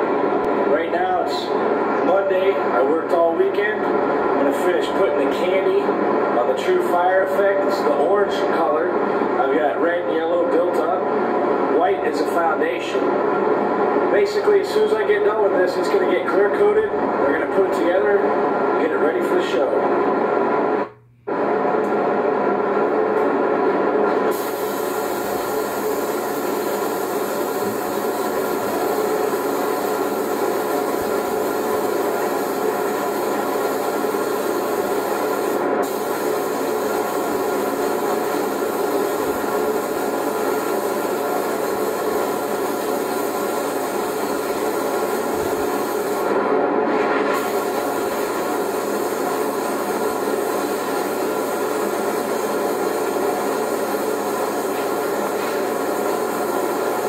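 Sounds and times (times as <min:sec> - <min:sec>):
paint sprayer humming and hissing: 0:24.2 - 0:46.4, 0:47.2 - 0:57.0.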